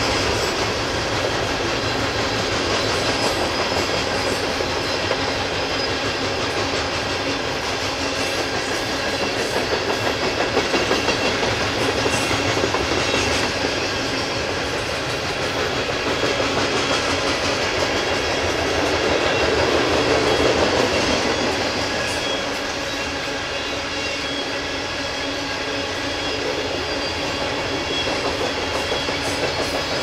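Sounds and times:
wheels clicking over rail joints: 0:00.0 - 0:22.9
freight train cars rumbling: 0:00.0 - 0:30.0.

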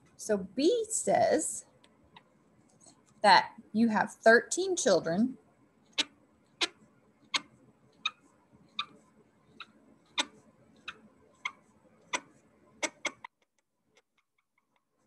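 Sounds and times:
marker squeaking on whiteboard: 0:05.8 - 0:15.0.

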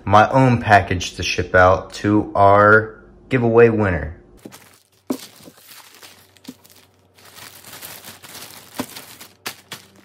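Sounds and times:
plastic bag crinkling: 0:04.4 - 0:10.0.

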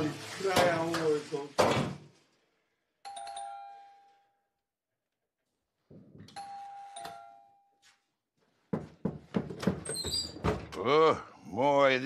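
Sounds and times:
doorbell chime ringing: 0:03.0 - 0:04.5, 0:06.4 - 0:08.0.

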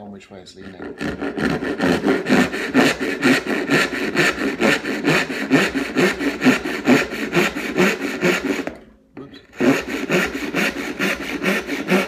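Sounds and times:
hand saw cutting wood: 0:00.5 - 0:08.8, 0:09.4 - 0:12.0.

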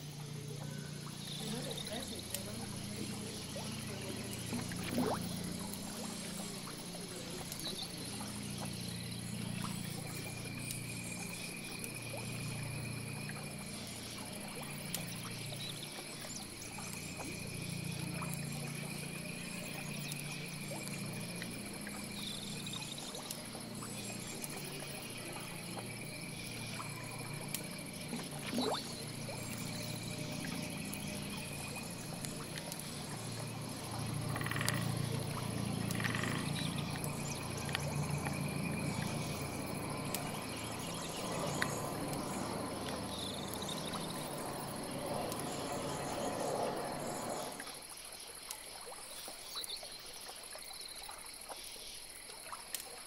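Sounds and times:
low drone: 0:00.0 - 0:47.8
high insect hiss: 0:00.0 - 0:53.0
frog trill: 0:34.3 - 0:35.0, 0:35.8 - 0:37.5.

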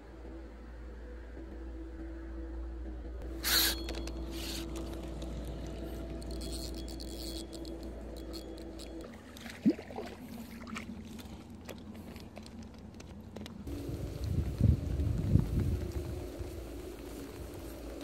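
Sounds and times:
steady low hum: 0:00.0 - 0:18.0
fish splashing in shallow water: 0:08.2 - 0:12.4.

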